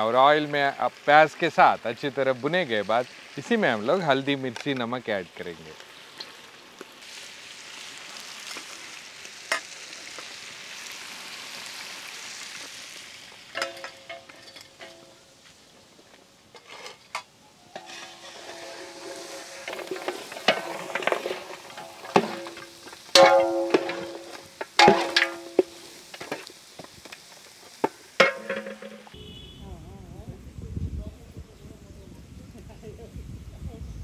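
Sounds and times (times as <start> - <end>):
meat sizzling in oil: 0.0 - 16.5, 17.5 - 28.5
metal ladle scraping a pot: 16.5 - 26.4.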